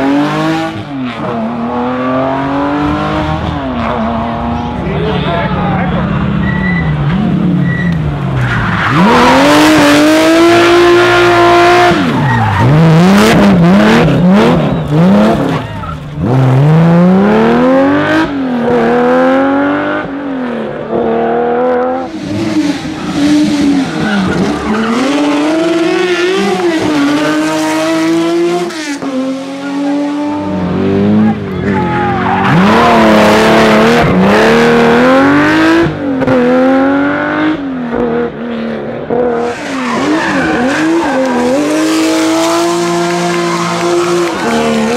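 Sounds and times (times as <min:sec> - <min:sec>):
rally car engine revving: 0:00.0 - 0:44.9
tyre squeal: 0:06.4 - 0:07.0, 0:07.6 - 0:09.7, 0:11.9 - 0:13.3, 0:39.4 - 0:42.1.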